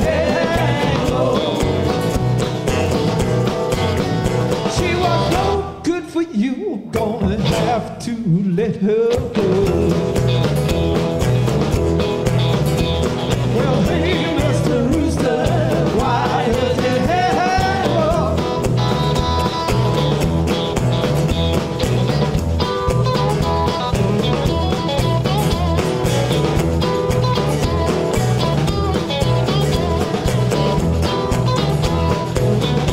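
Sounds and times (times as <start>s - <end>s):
live blues rock band: 0.0s - 6.2s, 6.8s - 32.9s
bending lead guitar line: 0.0s - 32.9s.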